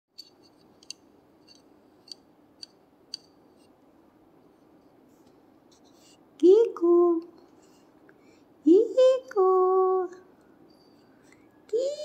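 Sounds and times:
low room hum: 0:00.2 - 0:12.0
small bell tinkling: 0:10.7 - 0:11.4.

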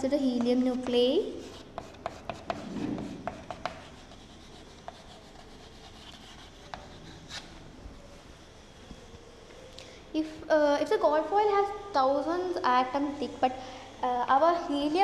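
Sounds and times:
chalk scratching: 0:00.1 - 0:07.7
chalk clicking on blackboard: 0:00.3 - 0:07.5.

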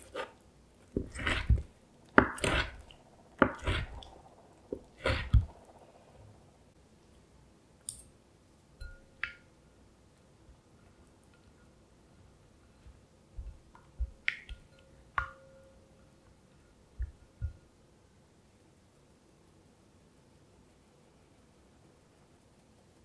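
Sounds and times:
knife chopping on cutting board: 0:02.2 - 0:02.8, 0:03.4 - 0:04.0.

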